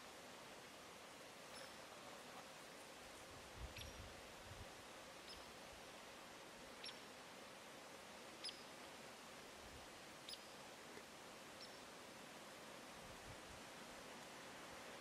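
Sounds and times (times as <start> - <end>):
faint hiss: 0.0 - 15.0
faint high-pitched chirps: 1.5 - 2.8, 3.7 - 4.1, 5.2 - 5.6, 6.8 - 7.1, 8.4 - 8.8, 10.2 - 10.6, 11.5 - 11.9.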